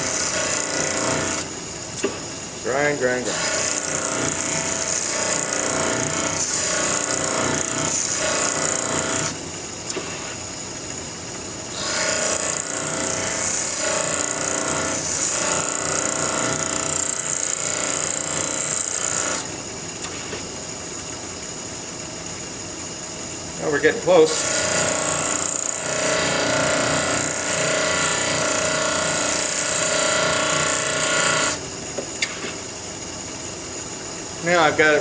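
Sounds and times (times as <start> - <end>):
bench grinder grinding steel: 0.0 - 1.5, 2.7 - 9.4, 11.7 - 19.5, 24.1 - 31.7.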